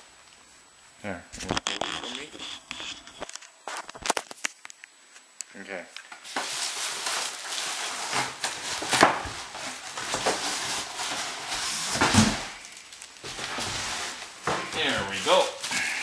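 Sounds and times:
plastic wrapping rustling: 6.0s - 16.0s
cardboard flaps scraping: 6.2s - 16.0s.

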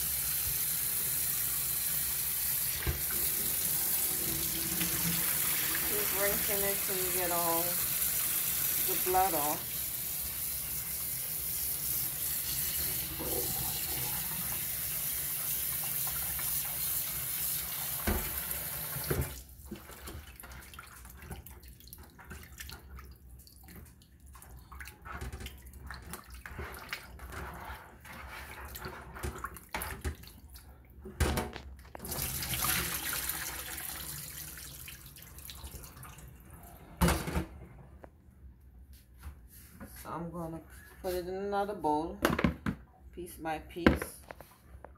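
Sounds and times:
faucet running into sink: 0.0s - 22.9s, 32.0s - 36.3s.

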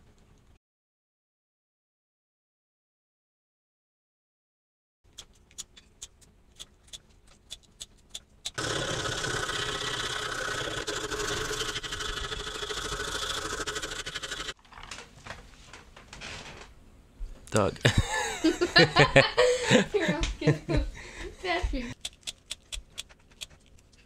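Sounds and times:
small motor running: 8.5s - 14.6s
sharp clicks: 22.0s - 23.6s.

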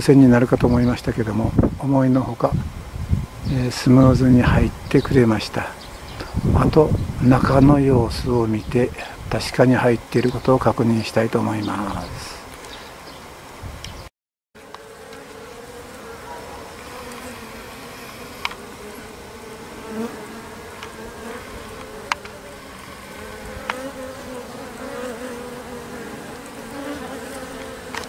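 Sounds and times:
bees humming: 14.6s - 28.0s.

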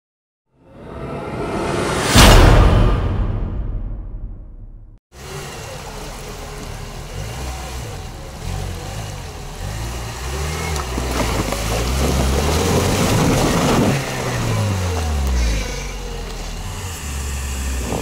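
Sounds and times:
engine revving: 5.2s - 18.0s
water and mud churning: 5.8s - 18.0s.

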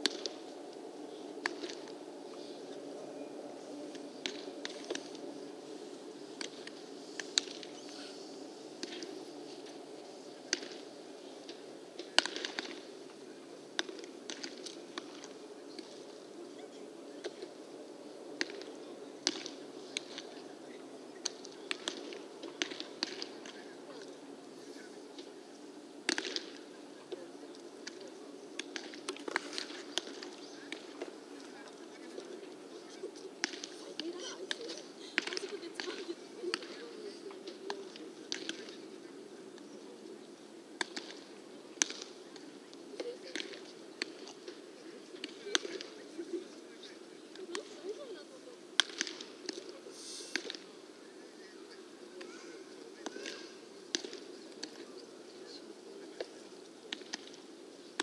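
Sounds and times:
baseballs smacking into gloves: 0.0s - 0.5s, 1.4s - 2.0s, 3.9s - 5.3s, 6.4s - 7.8s, 8.8s - 9.8s, 10.4s - 12.8s, 13.8s - 16.0s, 18.4s - 20.4s, 21.2s - 24.1s, 26.1s - 32.6s, 33.4s - 38.8s, 40.8s - 46.1s, 48.8s - 49.7s, 50.3s - 50.7s, 53.0s - 54.9s, 56.2s - 58.0s
low background noise: 0.0s - 58.0s
balls popping into leather gloves: 40.8s - 42.2s.

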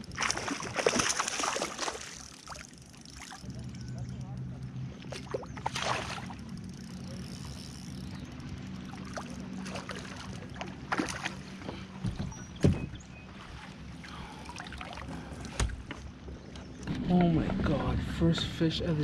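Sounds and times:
water splashing: 0.0s - 3.8s, 5.0s - 7.5s, 8.6s - 11.6s, 14.1s - 15.4s.

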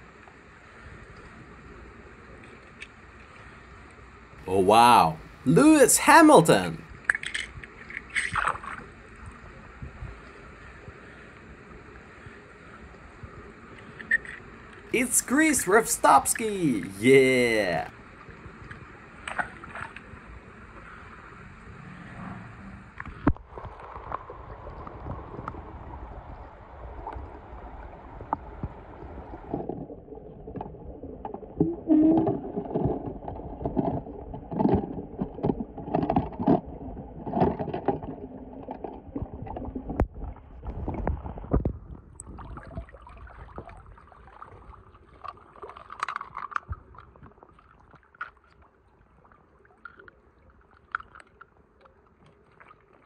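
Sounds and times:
water sloshing and splashing: 7.0s - 9.3s, 18.8s - 20.8s, 29.5s - 53.0s.

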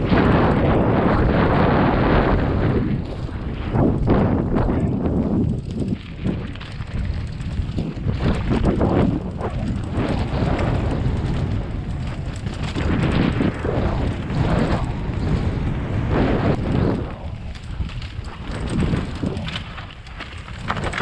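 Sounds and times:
tyres rumbling on dirt: 0.0s - 21.0s
wind buffeting microphone: 0.0s - 21.0s.

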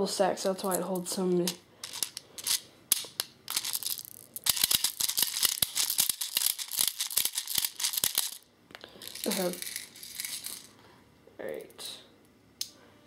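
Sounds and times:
plastic pellets clicking into magazine: 1.8s - 8.4s.

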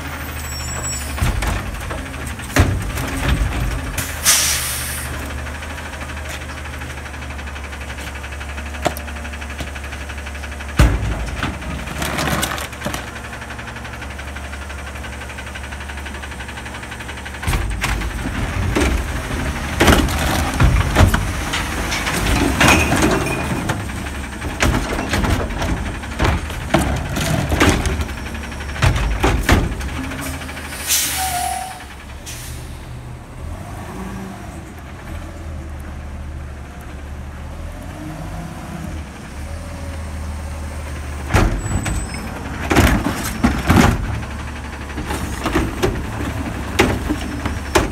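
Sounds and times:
recycling cart clattering and banging: 0.0s - 14.9s, 15.8s - 31.8s, 41.1s - 47.9s
truck engine idling: 0.0s - 47.9s.

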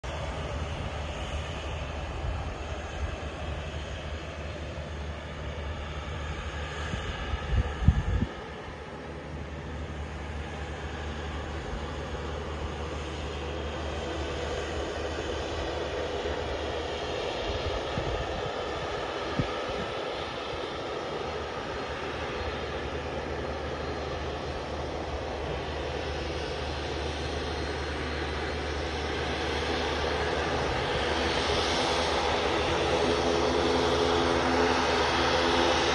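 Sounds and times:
turboprop engines rumbling: 0.0s - 35.9s
wind thumping on microphone: 7.4s - 8.4s.

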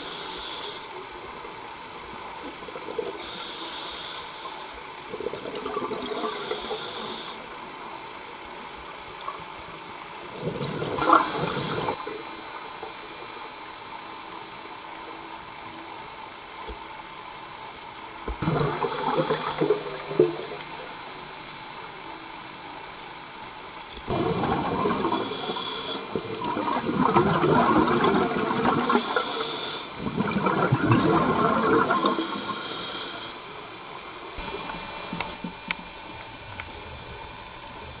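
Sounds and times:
exhaled bubbles bursting: 10.4s - 12.0s, 18.4s - 20.9s, 24.1s - 32.4s.

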